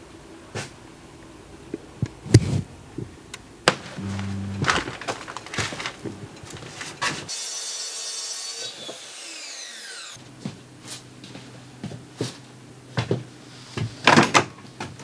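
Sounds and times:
power saw blade winding down: 0:07.3 - 0:10.2.

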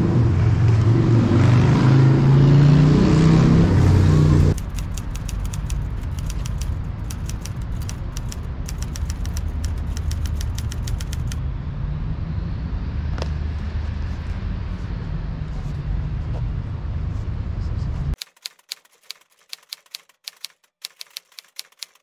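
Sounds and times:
typewriter key clicks: 0:04.5 - 0:11.4, 0:18.2 - 0:22.0.

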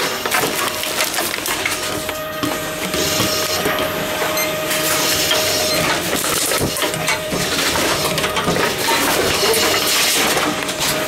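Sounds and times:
steady machine tone: 0:01.6 - 0:09.7.

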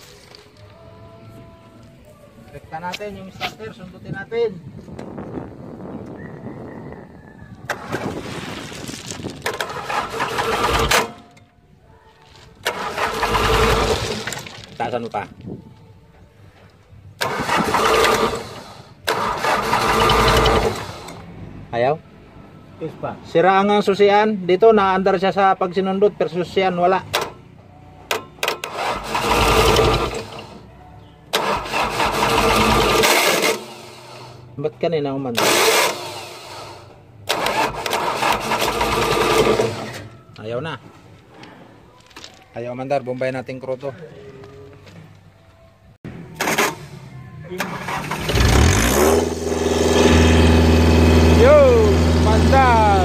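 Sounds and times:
starter motor cranking engine: 0:07.7 - 0:08.1, 0:09.4 - 0:11.2, 0:12.6 - 0:14.6, 0:17.2 - 0:21.2, 0:28.2 - 0:30.6, 0:31.3 - 0:34.5, 0:35.3 - 0:40.2, 0:46.4 - 0:53.0.

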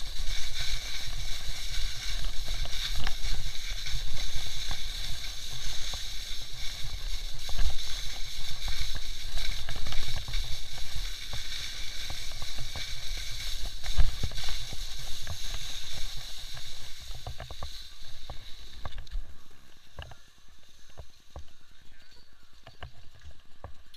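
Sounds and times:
skis hissing over snow: 0:00.0 - 0:21.9
wind rumbling on microphone: 0:00.0 - 0:23.9.

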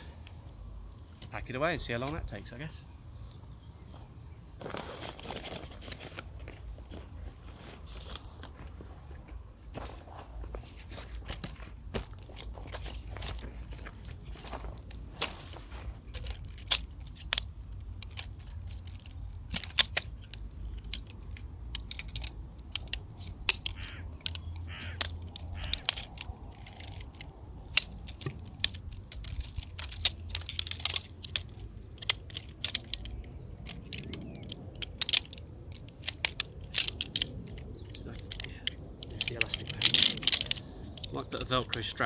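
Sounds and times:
metal chair frame clicking: 0:16.1 - 0:41.8.

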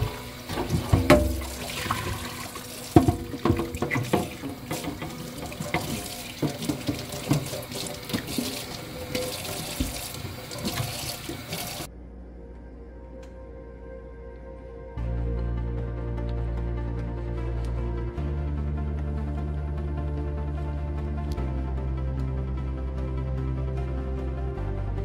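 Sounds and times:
dishes clinking under water: 0:00.0 - 0:11.6
tap running into sink: 0:00.0 - 0:11.9.

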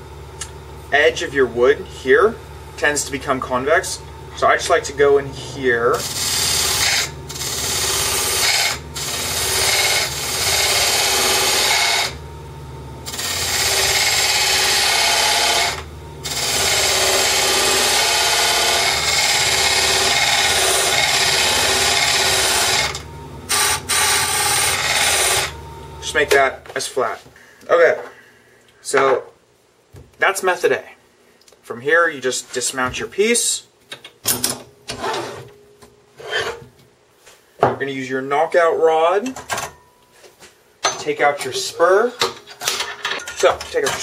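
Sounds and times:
lathe motor hum: 0:01.5 - 0:26.2
lathe tool scraping hiss: 0:03.8 - 0:12.2, 0:13.0 - 0:25.6.

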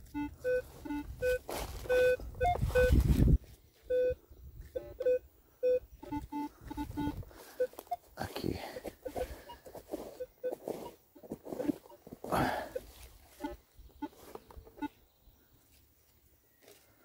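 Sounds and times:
metal detector beeps: 0:00.0 - 0:08.1, 0:08.8 - 0:15.0
dry leaves crunching underfoot: 0:00.6 - 0:01.9, 0:09.2 - 0:13.4.

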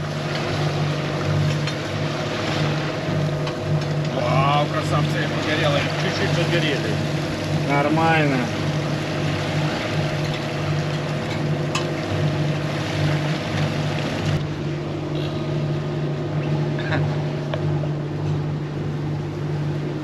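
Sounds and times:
boat diesel engines humming: 0:00.0 - 0:20.0
water wash: 0:00.0 - 0:20.0
wind: 0:00.0 - 0:20.0.

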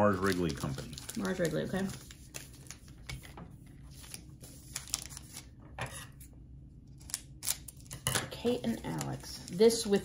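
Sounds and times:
plastic wrapper crinkling and tearing: 0:00.0 - 0:05.5.

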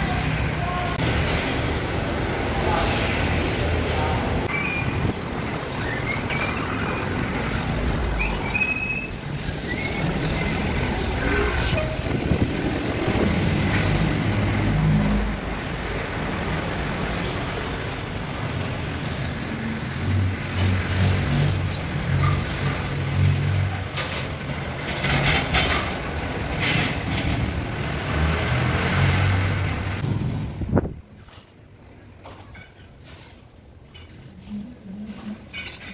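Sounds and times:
road traffic passing: 0:00.0 - 0:35.9.

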